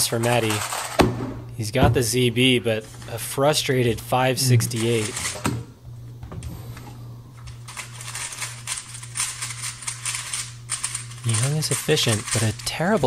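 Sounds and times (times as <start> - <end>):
speedcube clicking: 8.1 - 11.2, 12.0 - 12.6.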